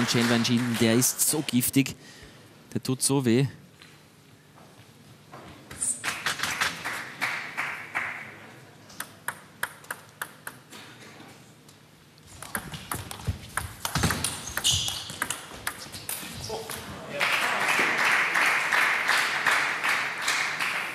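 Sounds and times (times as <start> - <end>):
table tennis ball bouncing: 9.0 - 10.7, 12.4 - 16.2
table tennis bat hits: 9.0 - 10.7, 12.4 - 16.2.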